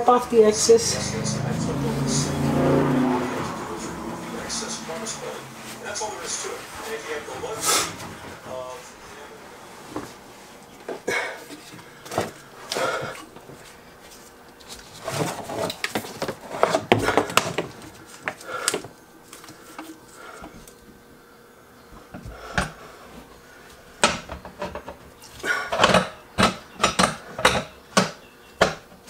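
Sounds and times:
garbage disposal clicking and clunking: 0:25.7 - 0:29.0.

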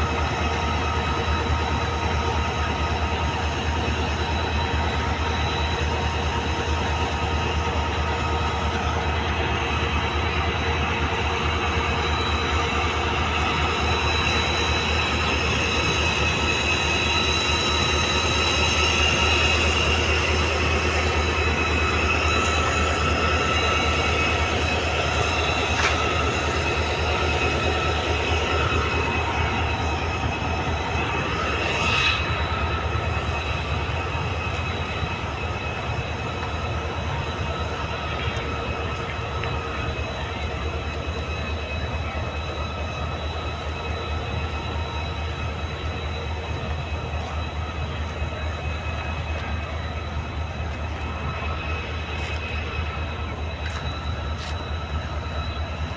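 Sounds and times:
diesel locomotive rumbling: 0:00.0 - 0:55.9
high whining tones: 0:00.0 - 0:55.9.

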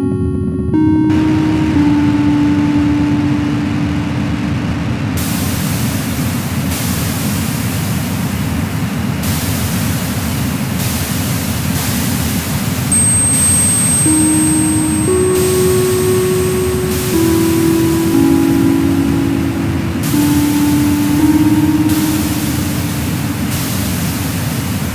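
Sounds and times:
low drone notes: 0:00.0 - 0:05.5, 0:13.1 - 0:24.4.

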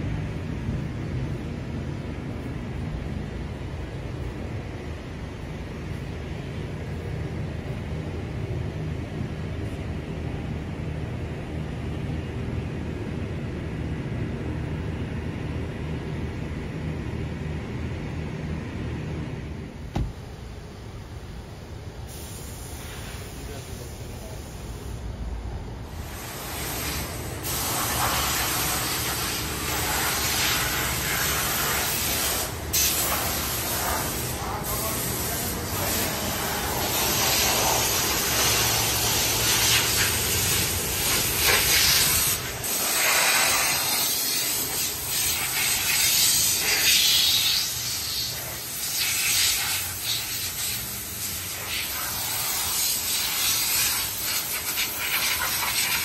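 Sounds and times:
compressed air hissing from blow gun: 0:22.1 - 0:25.0, 0:26.0 - 0:56.0.

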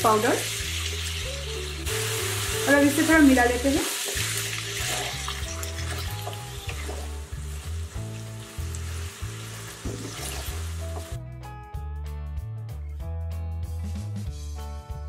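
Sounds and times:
food sizzling in oil: 0:00.0 - 0:11.2
background music with bass line: 0:00.0 - 0:15.0
spatula stirring in a pan: 0:03.8 - 0:11.1.

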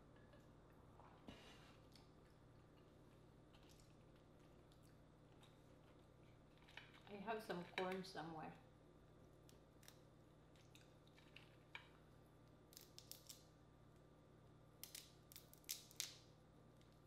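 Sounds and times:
crawfish shells cracking: 0:12.7 - 0:13.5, 0:14.8 - 0:16.2.

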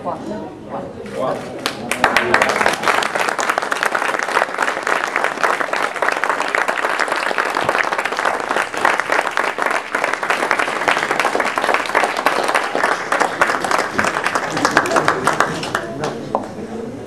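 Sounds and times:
crowd applauding: 0:01.6 - 0:16.5.

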